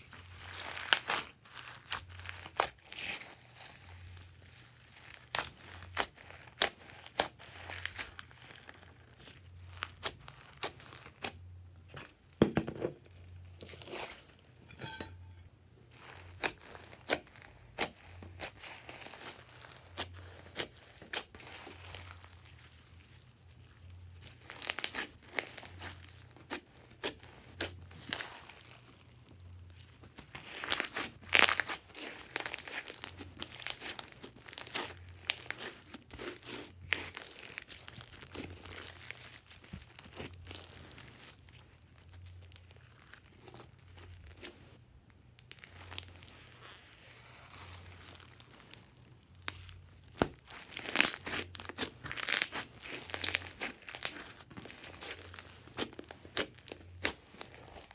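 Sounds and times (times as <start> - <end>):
foam beads crackling: 0.2 - 11.2, 15.9 - 44.6, 45.4 - 57.9
slime squishing with sticky clicks: 5.3 - 8.5, 49.4 - 57.9.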